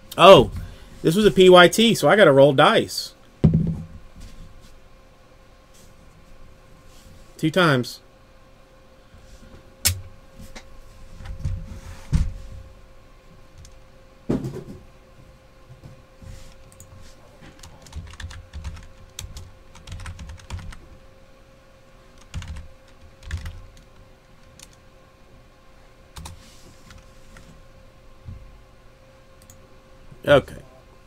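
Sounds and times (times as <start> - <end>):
louder knocks: 3.4 - 3.9
keyboard typing: 17.6 - 20.8, 22.2 - 24.8.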